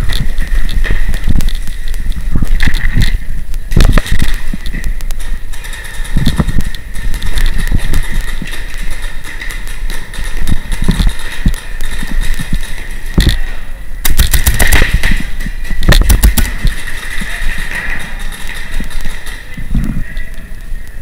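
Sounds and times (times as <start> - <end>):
indoor field din: 0.0 - 21.0
paintball markers firing: 0.1 - 13.4, 14.0 - 19.5.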